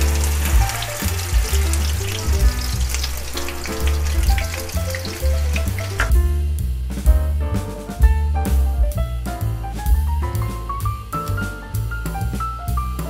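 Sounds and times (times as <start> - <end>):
paste sizzling in hot oil: 0.0 - 6.1
background music with bass: 0.0 - 13.0.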